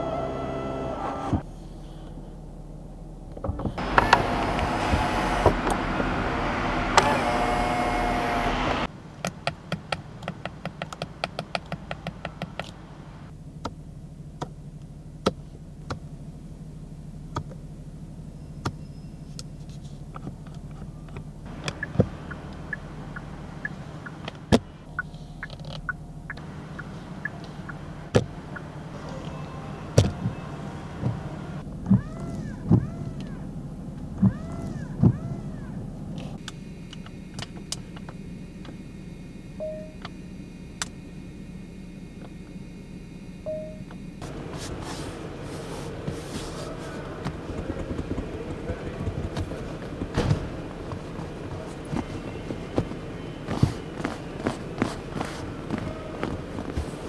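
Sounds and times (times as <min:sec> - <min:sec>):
windshield wipers whining: 0:00.0 - 0:01.5, 0:03.4 - 0:13.3, 0:20.1 - 0:41.0, 0:43.8 - 0:57.0
steady low hum: 0:11.9 - 0:57.0.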